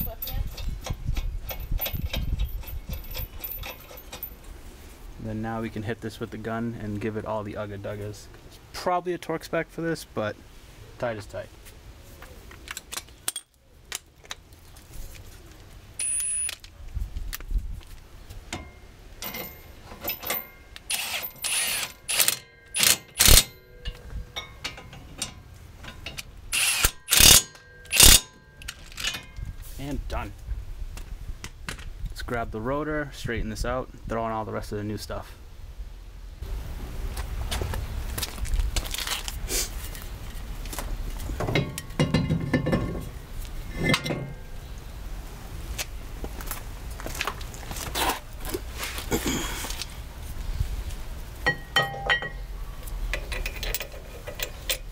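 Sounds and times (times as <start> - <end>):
brake rotor clinking against hub: 0.0 - 4.6, 18.5 - 29.6, 51.4 - 52.5, 53.1 - 54.9
impact wrench hammering: 20.9 - 25.4, 26.6 - 28.4.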